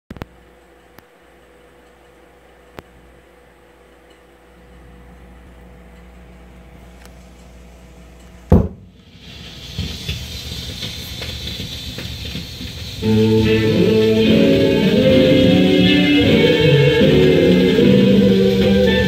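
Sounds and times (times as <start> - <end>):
record player hum: 0.1 - 19.0
record surface crackle: 0.1 - 19.0
pickup thump on record: 8.5 - 8.9.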